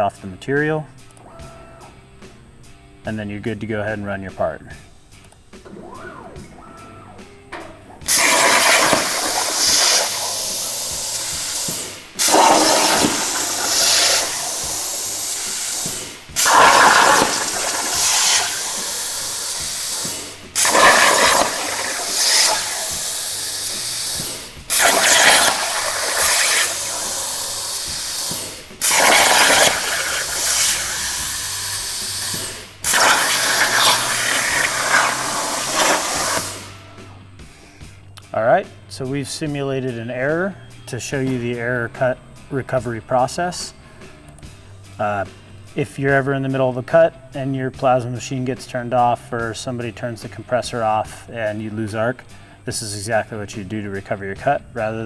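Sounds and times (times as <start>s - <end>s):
plasma cutter arc hissing: 8.0s - 36.8s.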